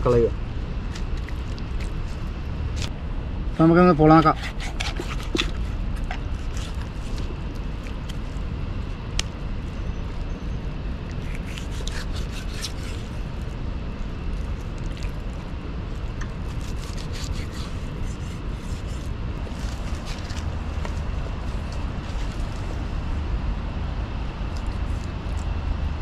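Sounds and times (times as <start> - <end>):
steady low rumble: 0.0 - 26.0
knife cutting on wooden block: 4.4 - 6.8, 11.2 - 13.1, 16.5 - 21.0.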